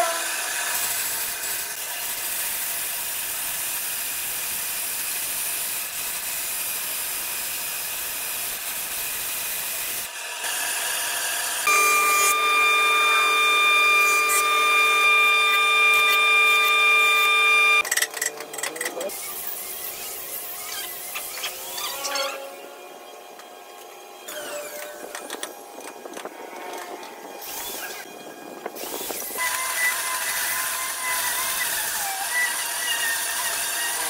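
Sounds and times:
band saw cutting wood: 0.0 - 22.6, 28.7 - 34.0
planer high whine: 11.6 - 17.8.

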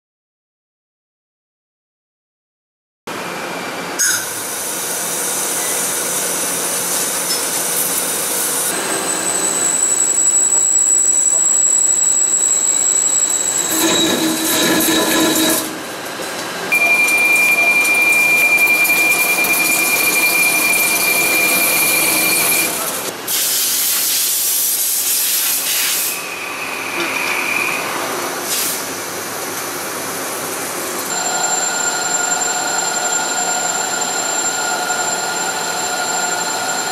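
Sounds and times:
high tool whines: 7.2 - 15.8, 16.7 - 23.1, 31.1 - 36.9.

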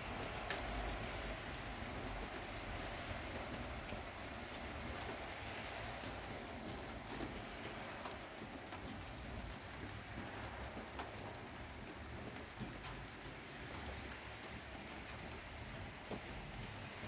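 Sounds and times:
wet snow pattering: 0.0 - 17.0.

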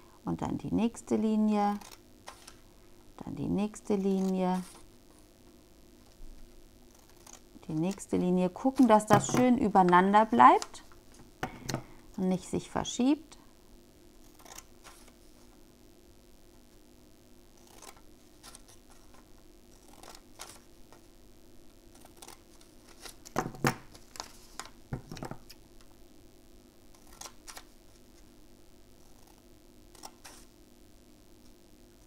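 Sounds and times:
scissors snipping paper: 19.8 - 20.6, 21.9 - 23.3, 26.9 - 27.7.

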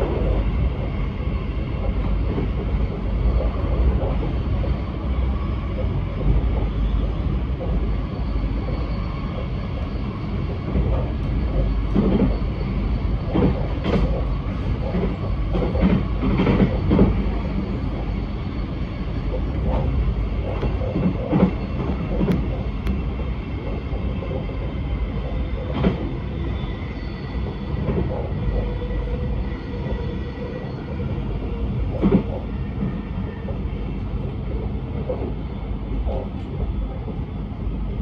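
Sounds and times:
train rumbling inside carriage: 0.0 - 38.0
knocks from train running gear: 11.9 - 12.4, 13.3 - 17.2, 19.6 - 22.6, 25.7 - 26.1, 31.9 - 32.4.

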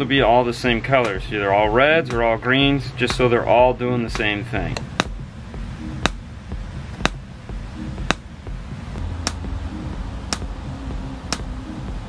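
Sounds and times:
sharp test clicks from speakers: 1.0 - 1.2, 4.1 - 5.2, 6.0 - 6.2, 6.9 - 7.2, 8.0 - 8.3, 9.2 - 9.5, 10.3 - 10.6, 11.2 - 11.6.

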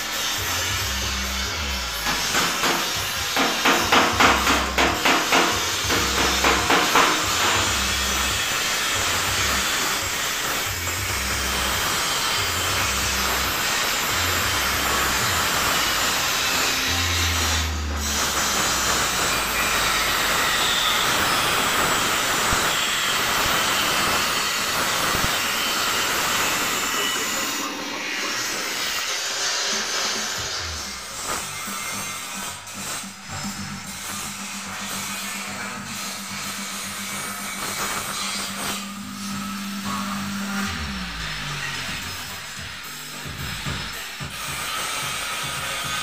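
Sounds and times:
background music bass: 0.0 - 20.6, 30.4 - 46.0.

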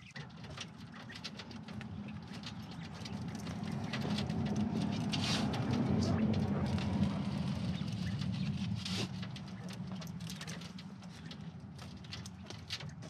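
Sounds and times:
low rustling of feed: 0.0 - 13.0
light clicks and taps: 8.2 - 13.0.

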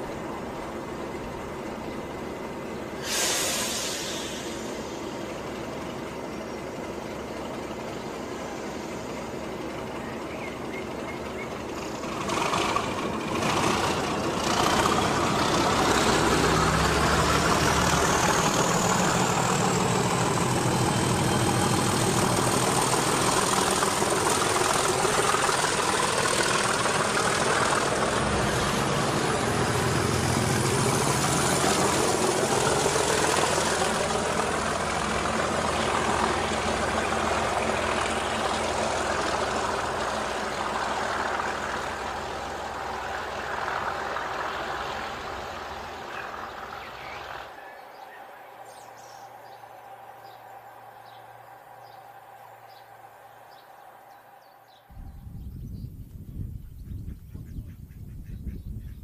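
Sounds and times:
diesel locomotive engine: 0.0 - 59.0
short hiss: 3.0 - 5.3.

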